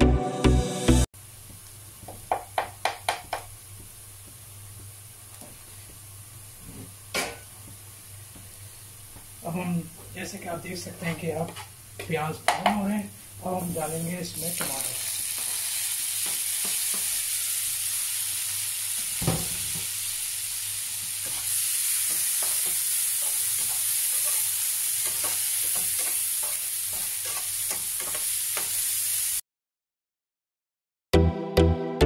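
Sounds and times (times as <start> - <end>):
vegetables sizzling in hot oil: 10.8 - 29.4
spatula scraping a frying pan: 11.0 - 11.8, 21.2 - 28.8.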